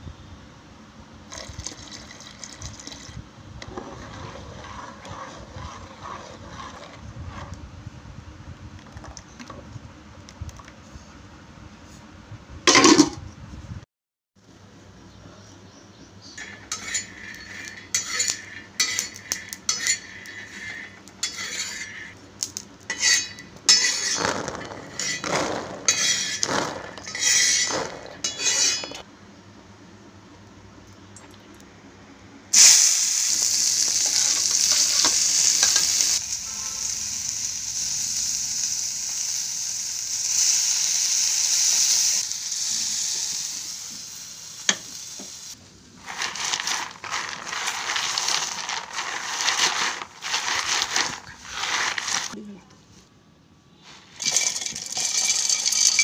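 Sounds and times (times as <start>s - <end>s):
spatula scraping a pan: 3.6s - 7.6s, 16.4s - 22.2s, 22.9s - 29.0s, 46.0s - 52.4s
loud steady sizzle: 16.4s - 28.9s, 32.5s - 52.4s, 53.9s - 56.0s
peanuts rattling in a pan: 23.7s - 28.3s, 32.6s - 36.2s, 46.0s - 52.4s, 54.1s - 56.0s.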